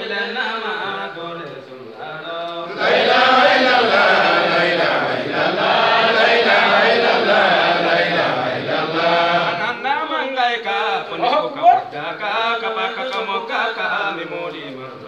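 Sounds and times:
crowd of men chanting: 2.7 - 9.8.

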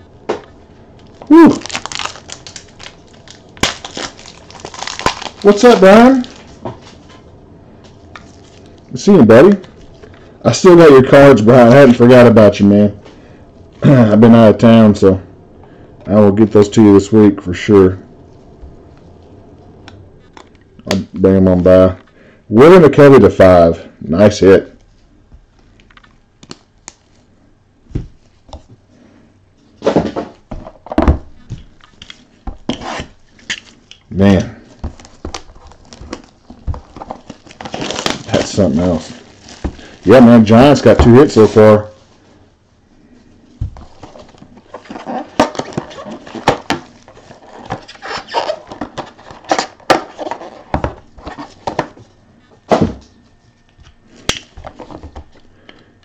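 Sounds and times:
packaging rustling: 0.9 - 7.1, 30.3 - 41.7, 43.5 - 52.2, 54.0 - 55.8.

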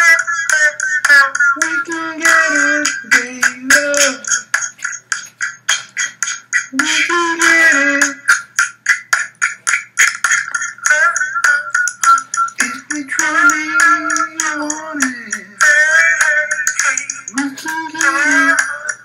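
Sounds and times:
beatboxed pitched melody: 0.0 - 19.0
beatboxing drum clicks: 11.8 - 18.7.

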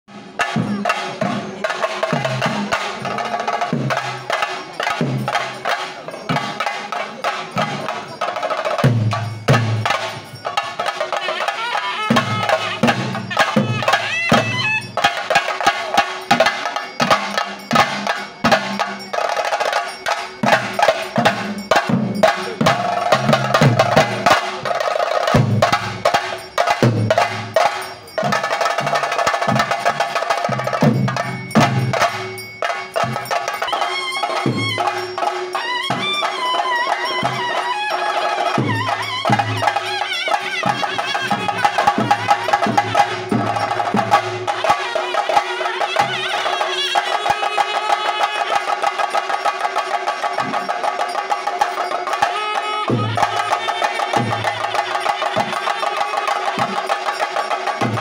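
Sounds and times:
drums beaten with sticks: 0.1 - 58.0
steady ringing tone: 12.2 - 44.6.

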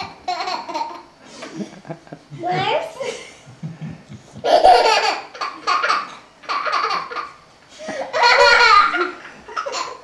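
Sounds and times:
toddler laughing: 0.0 - 1.1, 4.4 - 10.0.

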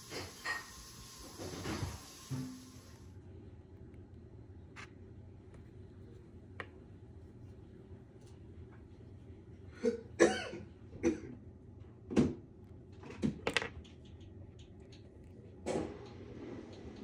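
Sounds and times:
faint low hum: 2.5 - 17.0
person coughing: 9.7 - 11.4.

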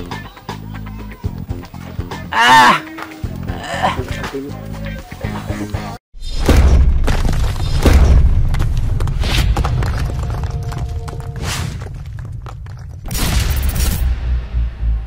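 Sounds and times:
deep booming hits: 6.3 - 10.0.

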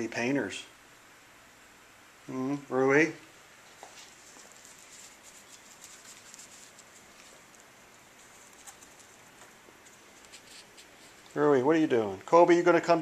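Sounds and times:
faint rustling: 3.6 - 12.2.

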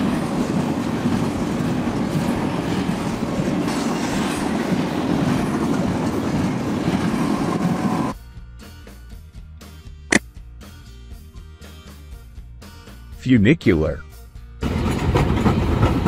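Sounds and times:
freight train wheels rumbling: 0.0 - 8.2, 14.6 - 16.0.

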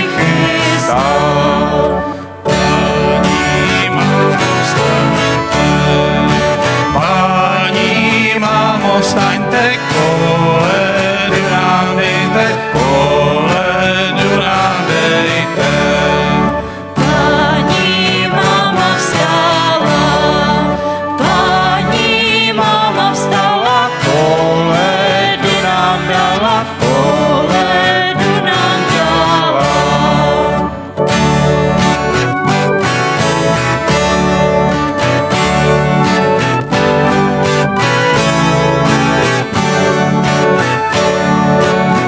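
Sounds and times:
acoustic guitar: 0.0 - 42.0
bass guitar: 0.0 - 42.0
keyboard: 0.0 - 42.0
woman singing: 17.0 - 30.7.

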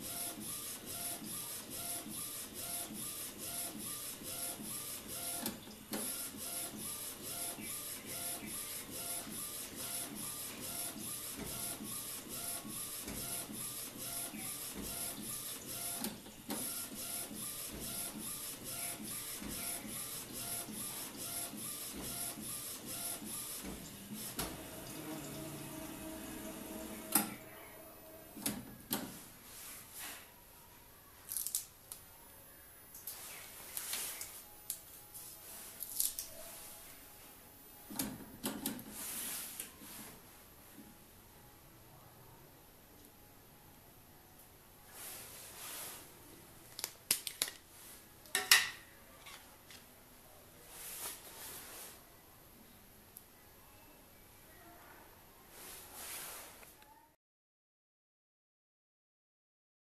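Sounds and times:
printer carriage shuttling: 23.2 - 27.5.

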